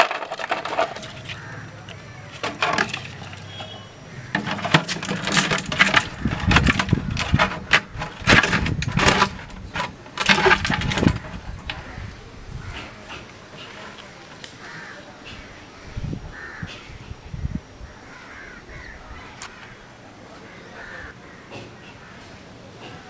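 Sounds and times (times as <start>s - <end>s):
thin plastic crackling and creaking: 0.0s - 11.9s.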